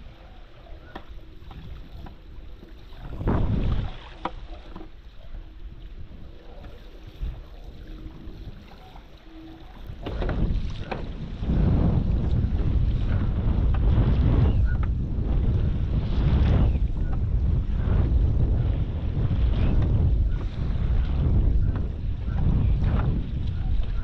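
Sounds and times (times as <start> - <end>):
water rushing: 0.0 - 14.8
wind buffeting microphone: 0.0 - 24.0.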